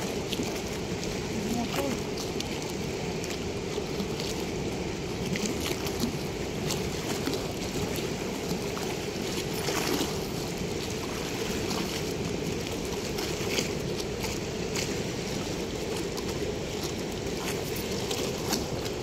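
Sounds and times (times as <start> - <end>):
water rushing through sluice gate: 0.0 - 19.0.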